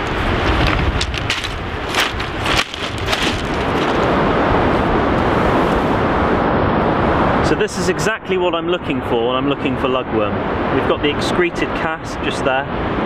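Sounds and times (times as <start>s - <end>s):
sharp crackles: 0.0s - 4.2s
wind buffeting microphone: 0.0s - 13.0s.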